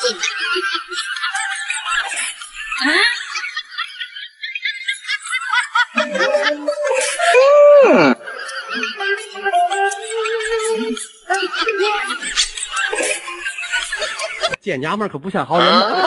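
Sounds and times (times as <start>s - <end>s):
laughter: 0.0s - 14.6s, 15.5s - 16.0s
background music: 5.9s - 12.2s
held tone sliding down in pitch: 6.0s - 8.2s.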